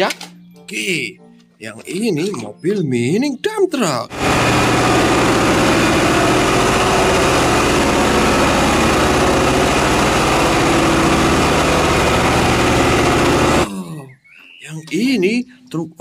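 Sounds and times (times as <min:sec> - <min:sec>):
diesel truck engine running: 0:04.1 - 0:13.7.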